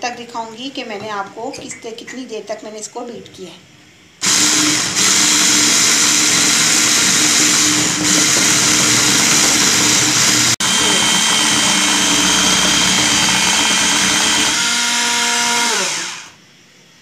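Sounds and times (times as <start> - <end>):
electric hand mixer whirring: 4.2 - 16.4.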